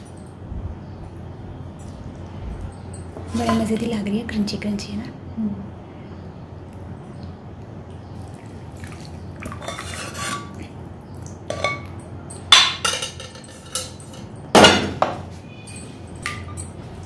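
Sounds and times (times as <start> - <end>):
utensil scraping metal pot: 9.5 - 10.7
sharp metallic clinks: 15.5 - 16.9.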